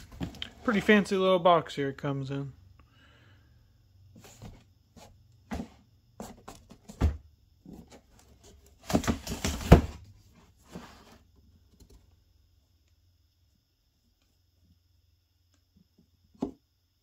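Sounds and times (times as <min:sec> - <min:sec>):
cardboard box knocks and scrapes: 0:08.7 - 0:11.2.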